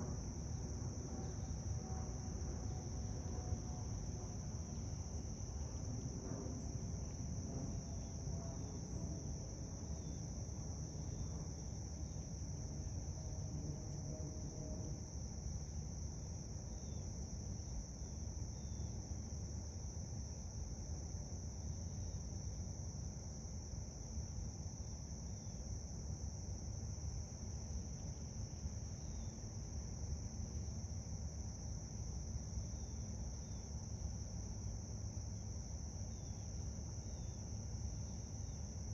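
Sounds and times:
low background rumble: 0:00.0 - 0:16.7
insects trilling: 0:00.0 - 0:38.9.

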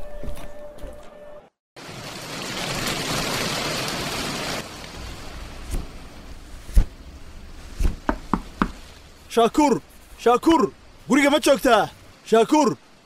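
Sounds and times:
short thumps: 0:07.7 - 0:09.0.

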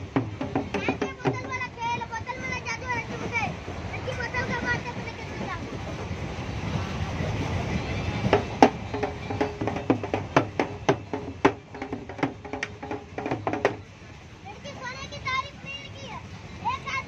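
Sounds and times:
rhythmic sharp knocks: 0:00.0 - 0:06.5, 0:07.1 - 0:14.0.

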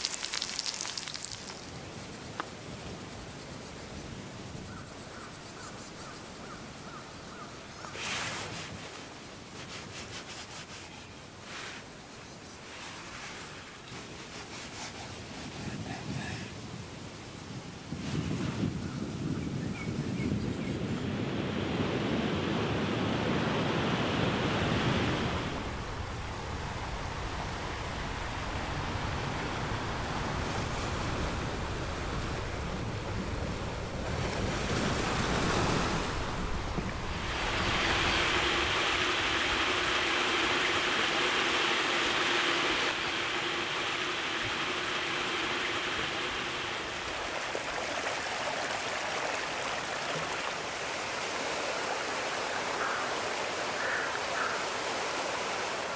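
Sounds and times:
waves breaking over rocks: 0:00.0 - 0:01.8, 0:30.3 - 0:55.9
stream running over stones: 0:00.0 - 0:02.6, 0:36.8 - 0:55.9.

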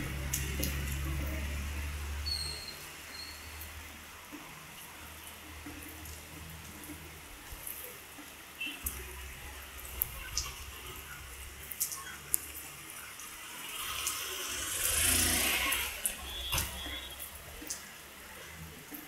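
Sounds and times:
heavy rain falling: 0:00.0 - 0:19.0
sharp drips or taps: 0:16.0 - 0:17.9.

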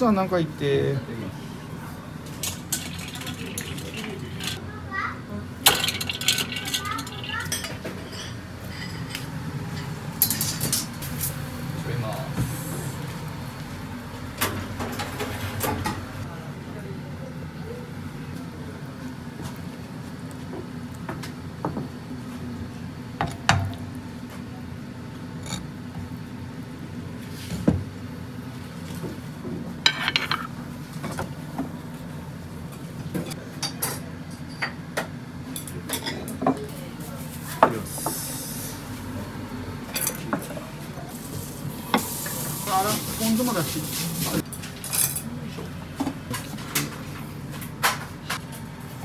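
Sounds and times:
plates and utensils clinking: 0:02.4 - 0:04.6, 0:05.7 - 0:11.0, 0:29.9 - 0:30.5.

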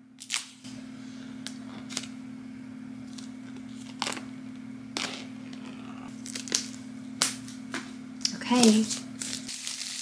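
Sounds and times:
steady low hum: 0:00.0 - 0:10.0
plastic tear strip crackling: 0:06.2 - 0:07.4, 0:08.2 - 0:10.0.

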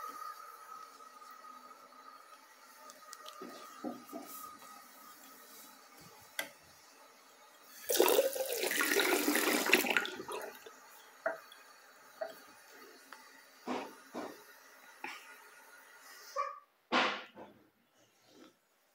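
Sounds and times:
water running from tap into sink: 0:07.6 - 0:15.8.

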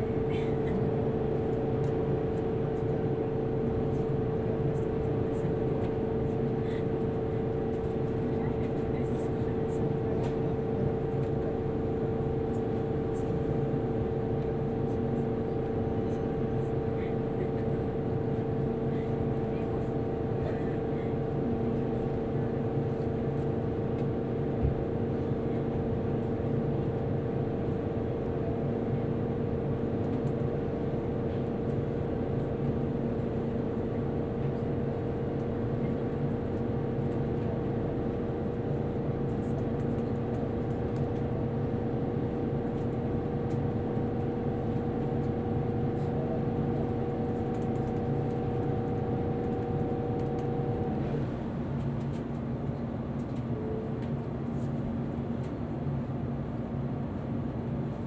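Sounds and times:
train cabin hum: 0:00.0 - 0:58.0
steady whining tones: 0:42.3 - 0:51.4.

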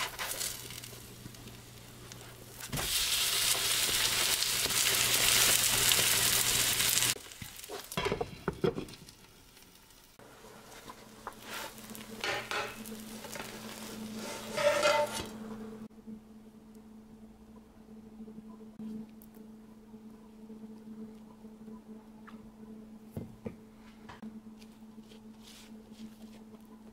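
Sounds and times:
batter sizzling in a pan: 0:00.0 - 0:15.4
dishes clinking: 0:12.2 - 0:12.9.

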